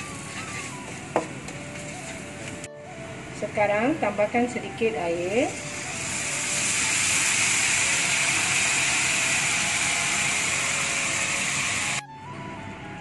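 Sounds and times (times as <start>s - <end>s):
water sizzling in hot oil: 5.5s - 12.0s.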